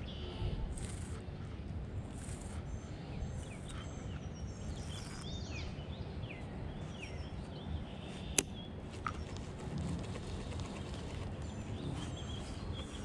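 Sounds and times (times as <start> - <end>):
birds chirping: 0.0 - 13.0
steady low rumble: 0.0 - 13.0.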